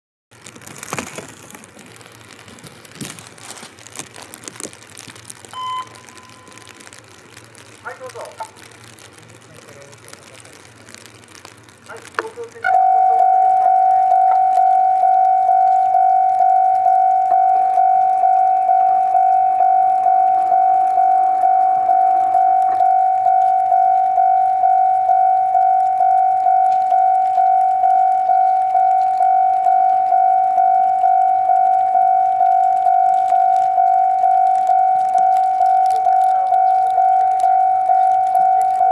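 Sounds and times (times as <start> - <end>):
light rain pattering: 0.3 - 38.9
electronic warning bell ringing: 12.7 - 38.9.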